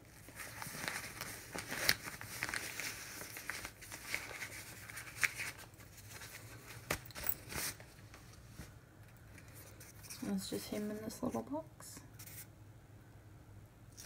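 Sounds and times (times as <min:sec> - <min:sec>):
wrapping rustling: 0:00.0 - 0:11.4.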